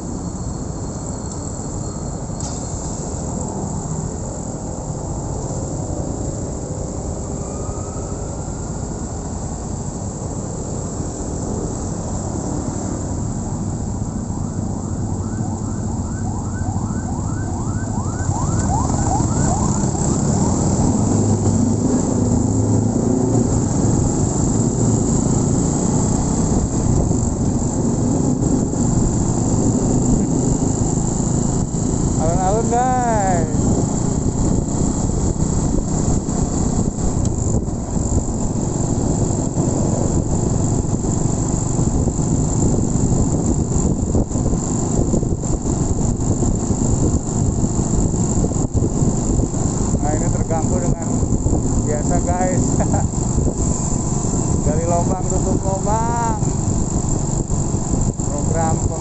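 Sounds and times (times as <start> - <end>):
siren-like warble: 6.9 - 9.3, 14.2 - 25.7
motorcycle engine running: 17.2 - 59.0
wind rush: 17.9 - 59.0.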